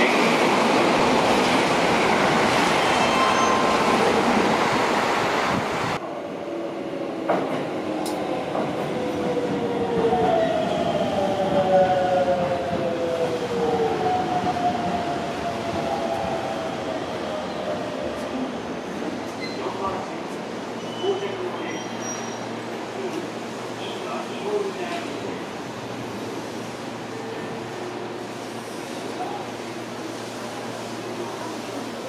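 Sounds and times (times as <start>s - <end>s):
train passing at speed: 0.0s - 20.7s
click: 8.0s - 8.2s.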